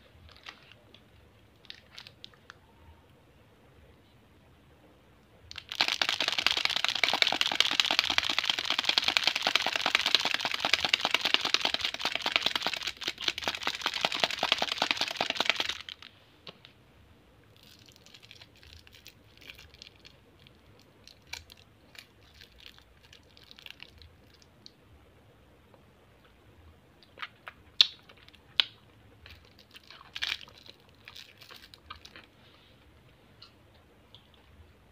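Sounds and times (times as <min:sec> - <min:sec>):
candy wrappers crinkling: 0:01.5 - 0:02.6, 0:05.5 - 0:16.1, 0:17.6 - 0:24.5, 0:29.2 - 0:32.4.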